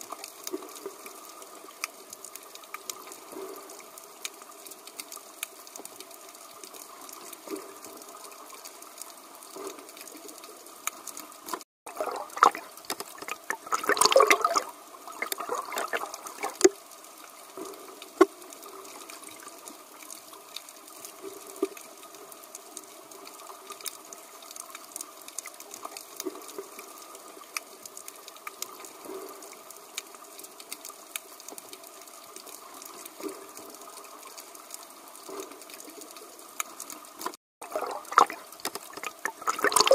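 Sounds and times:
underwater water noise: 0:00.0 - 0:39.9
rushing water surge: 0:11.9 - 0:16.7, 0:37.6 - 0:39.9.

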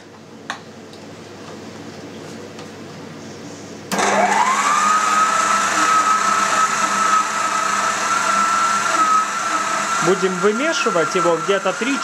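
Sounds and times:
stand mixer motor whine: 0:03.9 - 0:12.0.

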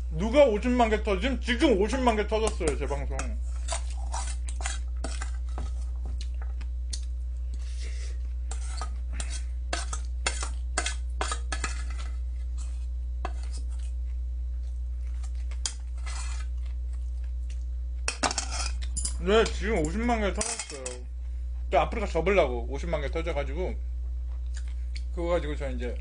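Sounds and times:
steady low hum: 0:00.0 - 0:26.0
metal spoon scraping steel bowl: 0:02.6 - 0:05.8, 0:08.5 - 0:13.8, 0:15.6 - 0:16.5, 0:18.1 - 0:18.9.

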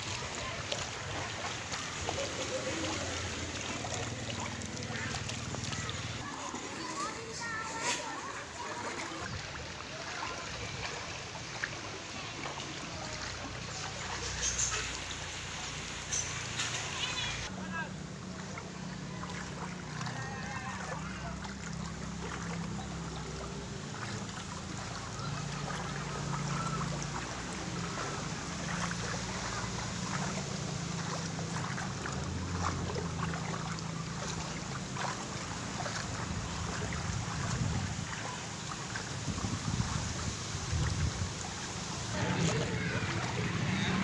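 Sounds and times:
water splashing from wading: 0:00.0 - 0:44.0
wind rumble on microphone: 0:36.0 - 0:38.2, 0:39.0 - 0:44.0.

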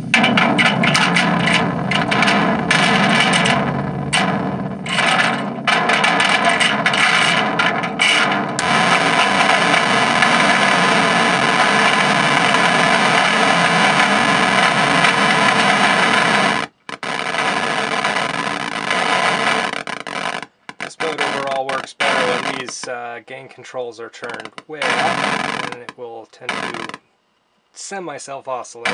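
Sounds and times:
harsh fuzzed scraping noise: 0:00.0 - 0:27.0.

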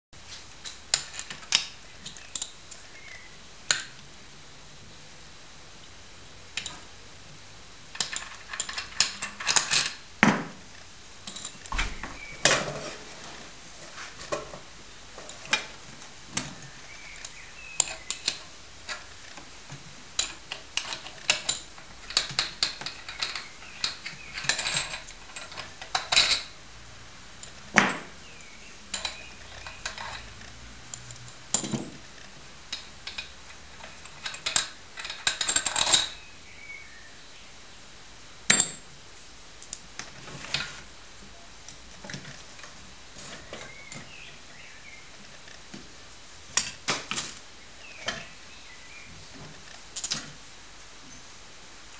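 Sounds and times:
hand tools clinking on metal: 0:20.2 - 0:26.6, 0:28.9 - 0:31.8.

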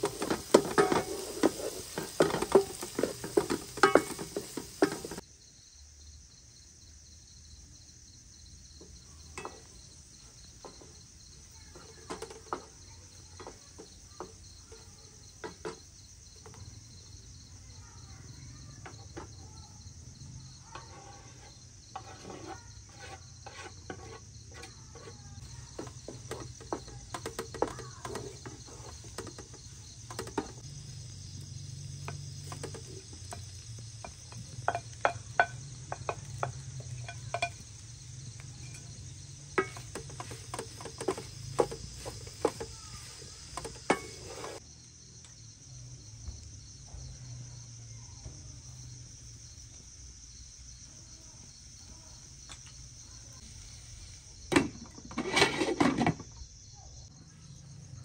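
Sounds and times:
utensils scraping metal frying pan: 0:00.0 - 0:05.2, 0:20.6 - 0:30.6, 0:32.0 - 0:37.6, 0:38.3 - 0:44.6, 0:54.5 - 0:56.3
insects chirring: 0:00.0 - 0:58.0.

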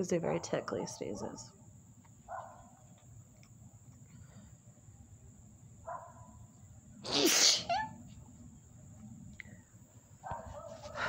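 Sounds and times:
woman sneezing: 0:07.0 - 0:07.9.

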